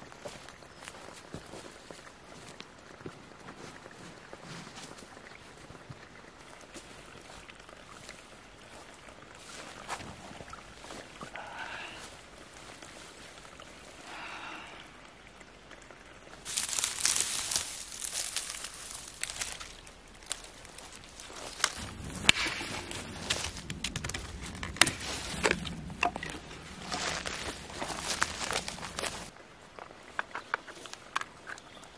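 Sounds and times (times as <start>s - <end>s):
footsteps crunching through heather: 16.4s - 29.9s
dry wood snapping: 16.5s - 29.3s.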